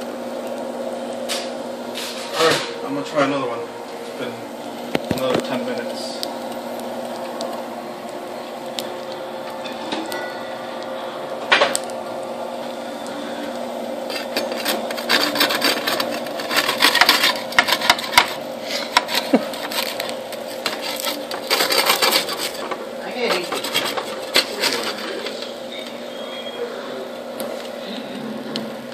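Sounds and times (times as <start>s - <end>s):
steady hum: 0.0s - 28.9s
metal spatula scraping pan: 14.1s - 19.2s, 20.5s - 25.3s.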